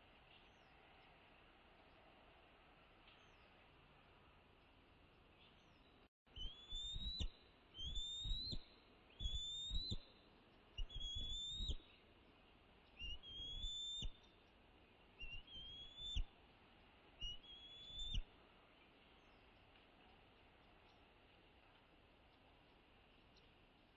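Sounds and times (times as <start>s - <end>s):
eagle whistled calls: 6.3s - 12.0s, 13.0s - 14.3s, 15.2s - 16.3s, 17.2s - 18.2s.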